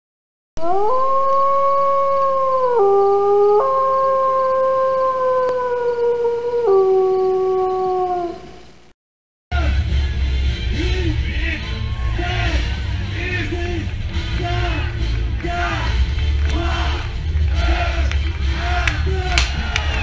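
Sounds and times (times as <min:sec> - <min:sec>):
wolf howling: 0:00.6 - 0:08.6.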